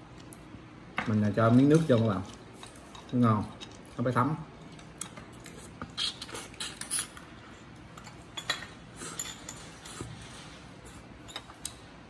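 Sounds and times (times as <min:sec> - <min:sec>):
person sucking and slurping: 0:05.5 - 0:07.2.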